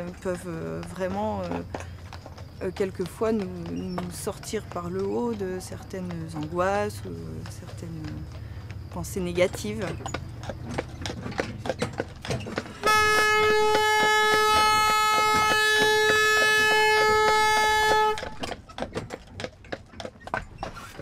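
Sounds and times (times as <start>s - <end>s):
horse hooves clopping on asphalt: 0.0s - 21.0s
horn long note: 12.8s - 18.4s.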